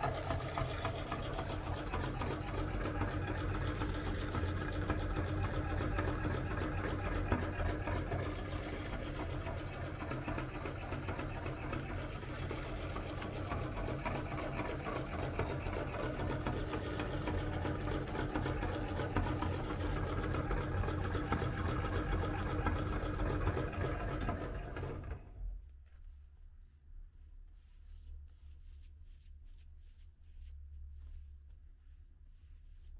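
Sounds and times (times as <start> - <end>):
meat grinder crushing water beads: 0.0 - 25.2.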